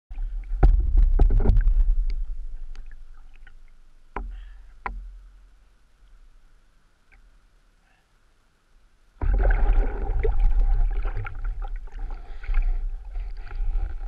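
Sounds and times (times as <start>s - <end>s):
splashes: 9.2s - 14.0s
water sloshing and slapping: 9.2s - 14.0s.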